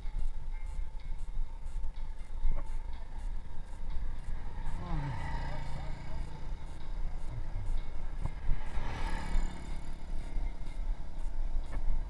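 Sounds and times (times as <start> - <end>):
motor vehicle passing: 3.2 - 12.0.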